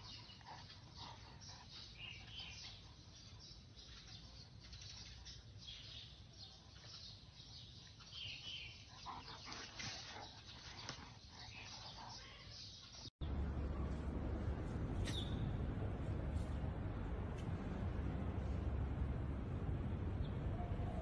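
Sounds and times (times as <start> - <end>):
bird chirps: 15.0 - 15.6.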